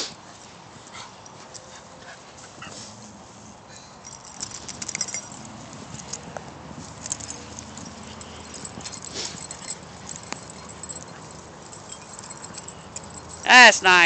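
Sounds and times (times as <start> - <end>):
dogs panting: 0.1 - 3.3, 7.0 - 13.4
crackling and rustling: 4.0 - 13.4
dogs whining: 7.0 - 13.4.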